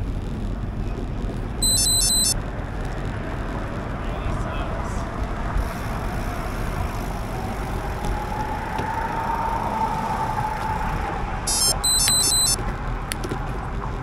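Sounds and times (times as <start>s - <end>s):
wind: 0.0s - 14.0s
faint whine: 1.6s - 2.4s, 11.5s - 12.6s
high electronic beeps: 1.6s - 2.4s, 11.5s - 12.6s
bicycle rolling noise: 2.4s - 11.5s, 12.6s - 14.0s.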